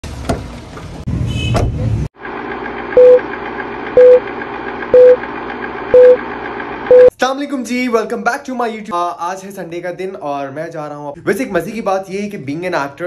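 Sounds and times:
short loud beeps: 0:05.0 - 0:05.2, 0:06.0 - 0:06.2, 0:06.9 - 0:07.1.

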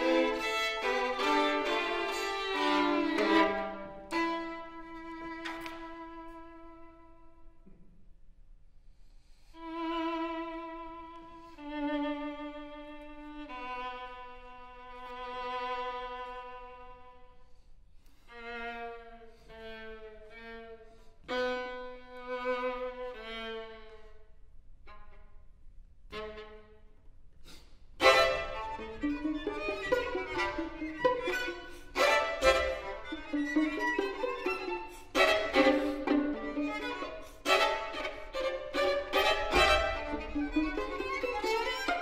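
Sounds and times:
violins playing: 0:00.0 - 0:07.4, 0:28.0 - 0:42.0.

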